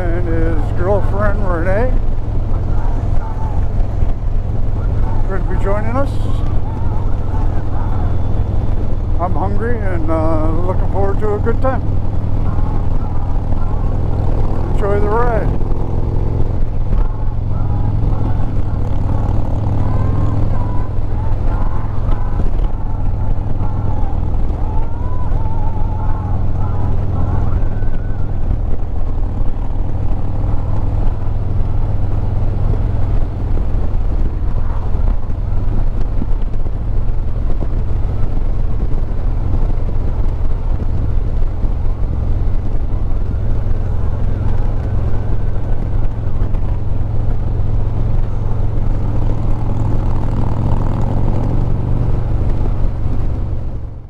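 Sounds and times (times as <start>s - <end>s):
motorcycle engine running: 0.0s - 54.0s
wind and road noise: 0.0s - 54.0s.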